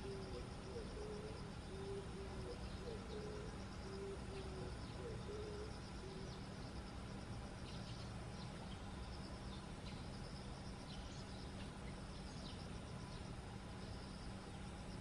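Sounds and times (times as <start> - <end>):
low hooting calls: 0.0 - 6.5
insect trill: 0.0 - 15.0.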